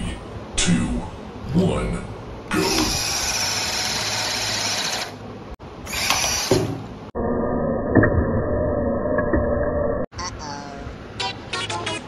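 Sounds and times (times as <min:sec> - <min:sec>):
electric motor whirring: 0:02.5 - 0:05.2, 0:05.9 - 0:06.7.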